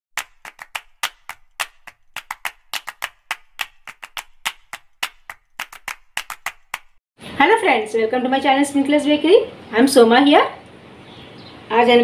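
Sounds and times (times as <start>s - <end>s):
dry clicking percussion music: 0.2s - 7.0s.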